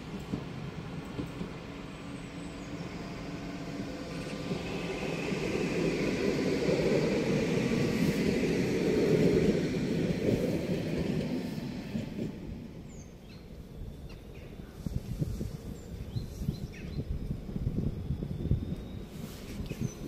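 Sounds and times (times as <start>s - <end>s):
tram wheels rumbling on rails: 0.0s - 20.0s.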